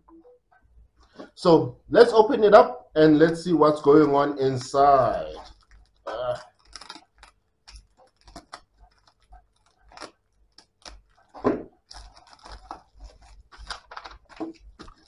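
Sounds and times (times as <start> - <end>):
plastic bag crinkling: 4.3 - 15.0.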